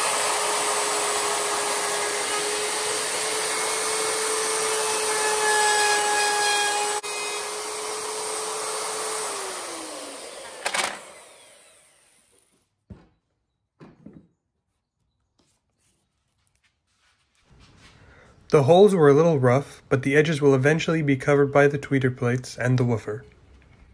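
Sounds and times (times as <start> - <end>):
router cutting plywood: 0.0 - 12.5.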